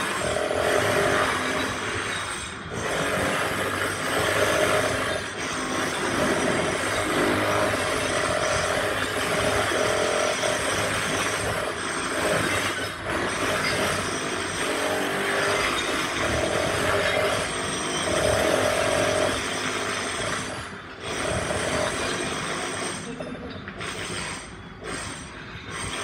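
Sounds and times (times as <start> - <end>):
power tools grinding and rattling: 0.0 - 26.0.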